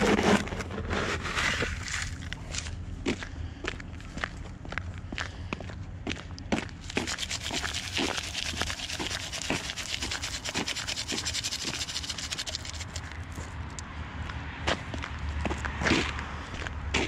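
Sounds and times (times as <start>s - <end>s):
footsteps: 6.5s - 13.6s.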